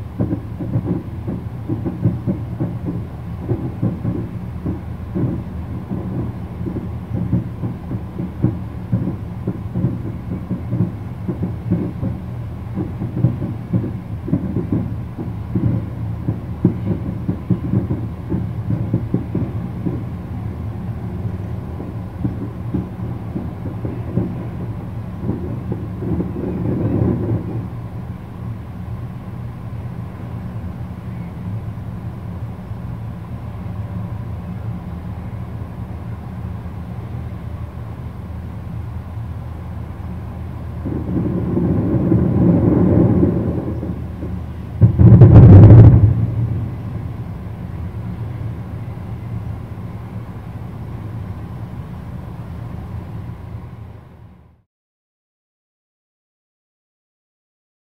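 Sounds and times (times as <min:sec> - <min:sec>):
distant fireworks booming: 0:00.0 - 0:31.6, 0:39.8 - 0:51.3.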